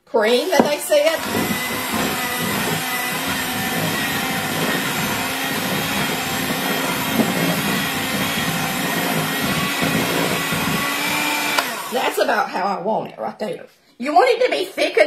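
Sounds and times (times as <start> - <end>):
electric hand mixer running: 0.3 - 12.4.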